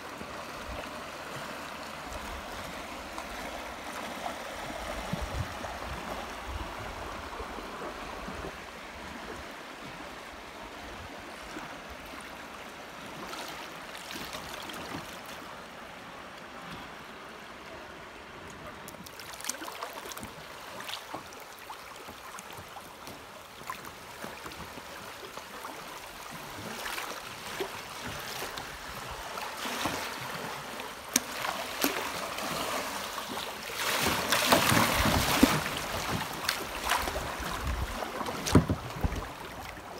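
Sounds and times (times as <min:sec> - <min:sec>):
creek water rushing: 0:00.0 - 0:39.9
water splashing: 0:18.8 - 0:39.9.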